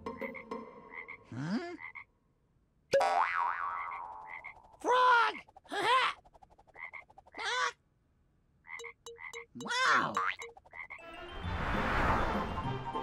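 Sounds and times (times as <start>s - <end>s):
frog croaking: 0.2s - 2.1s, 3.2s - 4.8s, 6.7s - 7.7s, 8.6s - 11.0s.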